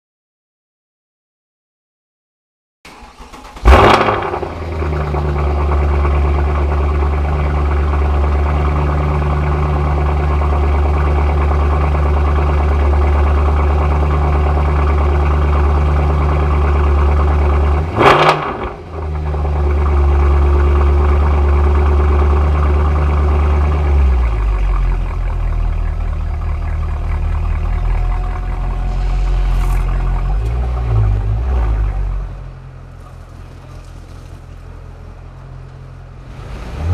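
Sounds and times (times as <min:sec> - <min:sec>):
car engine starting and idling: 0:02.9 - 0:36.9
engine throttle blip: 0:14.6 - 0:32.5.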